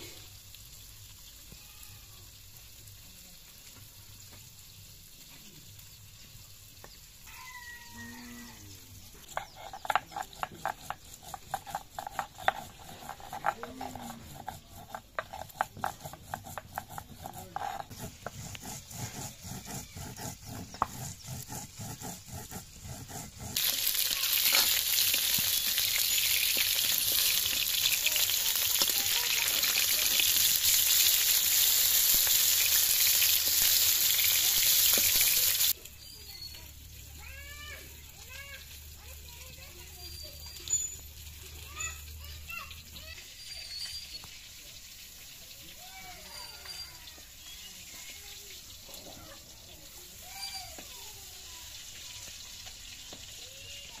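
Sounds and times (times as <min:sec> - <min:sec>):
fish frying in oil: 0:00.0 - 0:08.2, 0:23.6 - 0:54.0
grinding on stone slab: 0:09.0 - 0:35.7.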